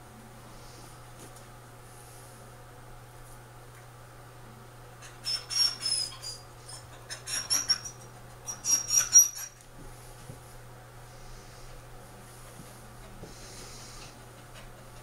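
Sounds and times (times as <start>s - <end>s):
clippers squeaking and rasping: 5.0s - 9.6s.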